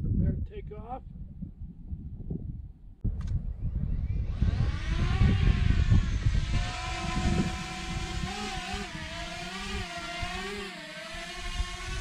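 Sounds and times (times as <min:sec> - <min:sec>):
heavy low rumble: 0:01.0 - 0:10.3
drone propellers whining: 0:03.4 - 0:12.0.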